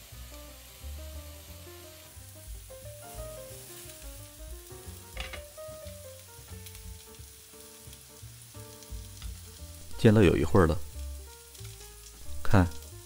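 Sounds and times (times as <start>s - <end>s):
mushrooms sizzling in oil: 0.0s - 13.0s.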